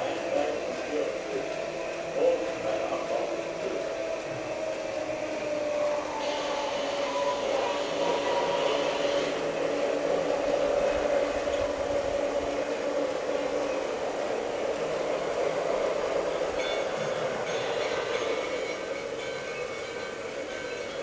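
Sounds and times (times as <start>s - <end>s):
model train motor whirring: 6.1s - 12.6s.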